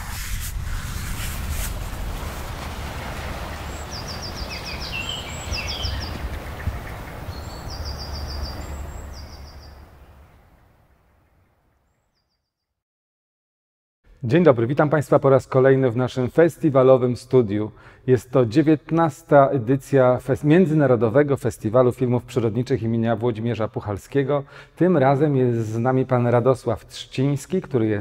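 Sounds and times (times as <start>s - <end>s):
steady rushing background noise: 0.0s - 9.1s
songbird trills: 3.6s - 10.4s.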